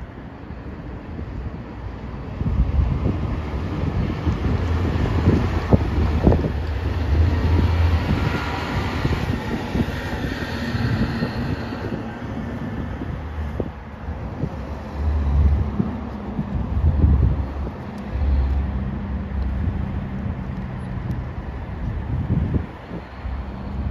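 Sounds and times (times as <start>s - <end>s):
wind buffeting microphone: 0.0s - 23.9s
dump truck driving past: 2.2s - 21.0s
car driving by: 2.5s - 13.7s, 14.4s - 21.0s.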